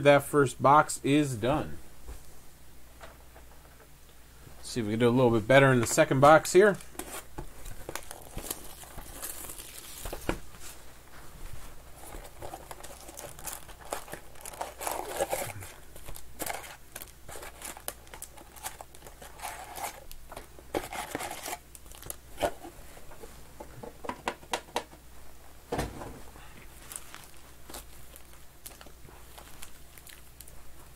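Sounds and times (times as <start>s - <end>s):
plastic wrap tearing and crinkling: 7.2s - 10.5s, 12.0s - 22.6s, 26.7s - 30.6s.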